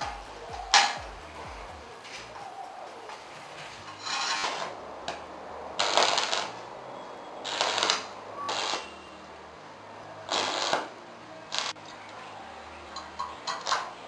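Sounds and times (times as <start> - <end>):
welding arc crackling: 3.1 - 11.8, 13.4 - 14.0.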